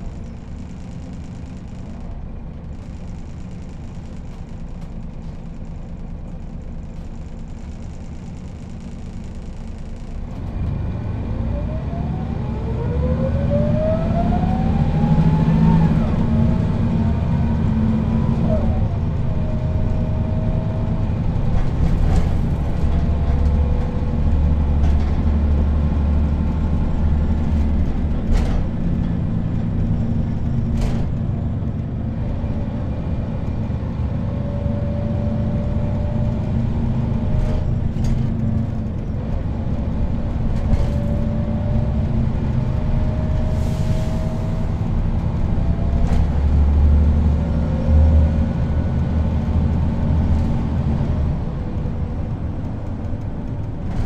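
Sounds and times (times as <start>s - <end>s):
bus body rattles and knocks: 0.0s - 10.6s, 19.0s - 34.0s, 35.6s - 43.4s, 44.8s - 54.0s
bus diesel engine running: 0.0s - 54.0s.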